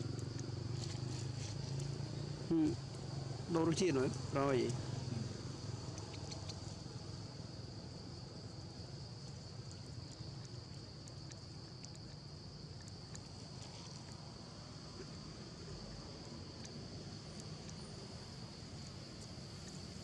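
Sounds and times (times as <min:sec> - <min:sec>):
faint ticks: 0:00.0 - 0:02.0, 0:05.9 - 0:06.9, 0:09.2 - 0:14.3.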